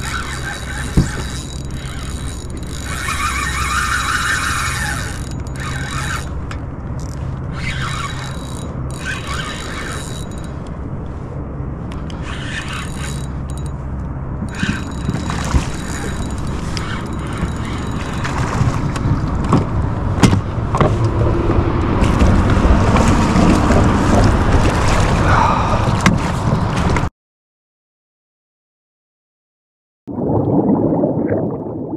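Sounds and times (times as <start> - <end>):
fishing reel drag buzzing: 0.0 - 6.4, 7.0 - 10.6, 12.0 - 13.8, 14.4 - 18.6
fish splashing: 30.1 - 31.9.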